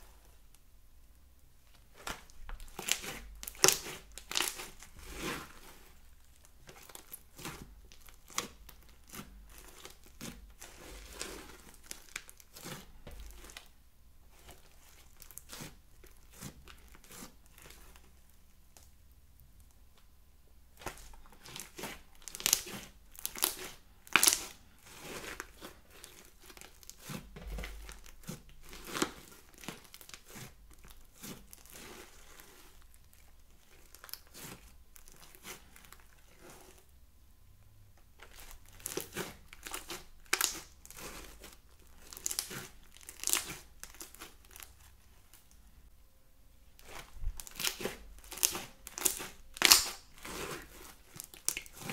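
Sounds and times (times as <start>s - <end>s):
slime crackling and clicking: 47.5s - 50.1s.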